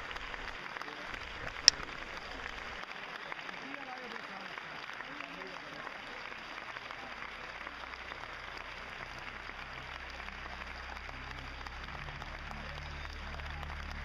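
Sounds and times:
audience applauding: 0.0 - 14.0
low droning note: 6.7 - 14.0.

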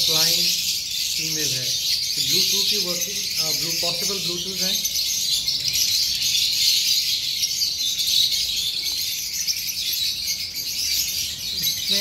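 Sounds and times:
cage birds chirping: 0.0 - 12.0.

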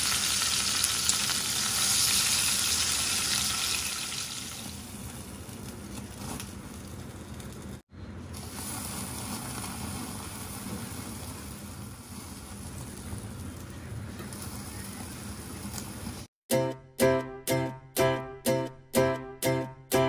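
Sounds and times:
chicken sizzling on grill: 0.0 - 16.3
gas burner flame hissing: 0.0 - 16.3.

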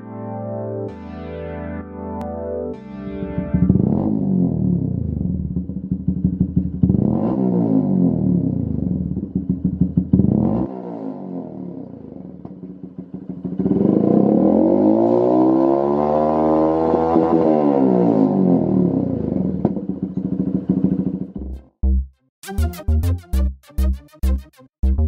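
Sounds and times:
motorcycle engine revving: 3.4 - 21.7.

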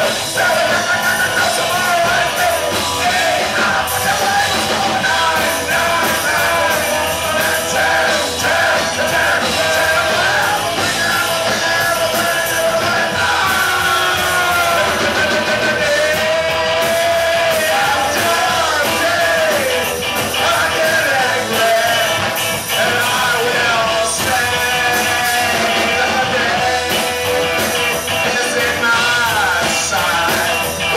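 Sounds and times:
lead singer singing: 0.0 - 30.9
live rock band playing: 0.0 - 30.9.

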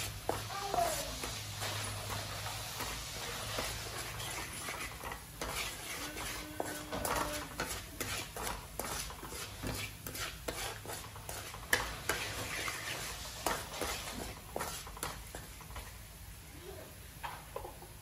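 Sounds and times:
spatula scraping a frying pan: 0.0 - 16.1
light frying sizzle: 0.0 - 18.0.

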